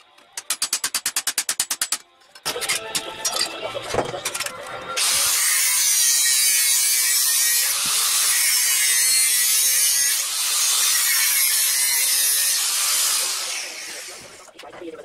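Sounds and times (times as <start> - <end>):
angle grinder grinding steel: 4.2 - 14.4.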